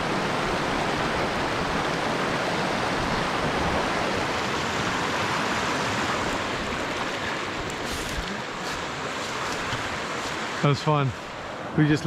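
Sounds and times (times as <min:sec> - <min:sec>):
water rushing over rocks: 0:00.0 - 0:12.0.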